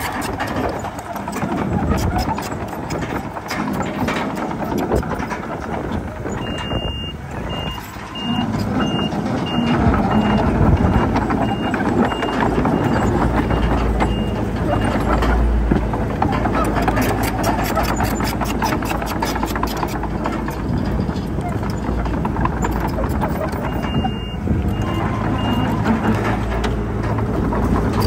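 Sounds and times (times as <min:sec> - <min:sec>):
diesel engine running: 0:00.0 - 0:28.0
reversing alarm beeping: 0:06.3 - 0:15.2, 0:23.5 - 0:26.1.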